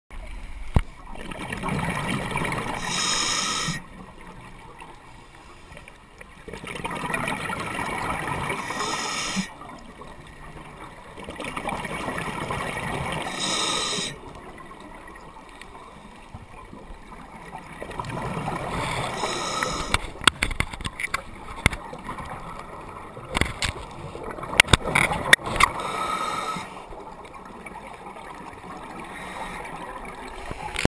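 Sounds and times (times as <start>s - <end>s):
sharp clicks and knocks: 19.9s - 21.8s.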